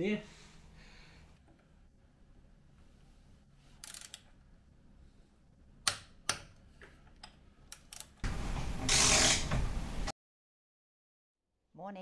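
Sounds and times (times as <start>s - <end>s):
socket ratchet clicking: 3.8s - 4.2s.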